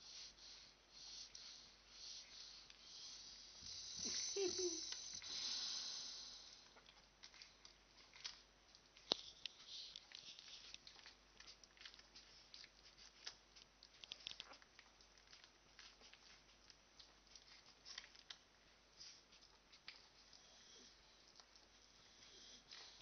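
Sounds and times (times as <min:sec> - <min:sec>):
puppies suckling clicks: 0:01.0 - 0:05.4, 0:06.4 - 0:23.0.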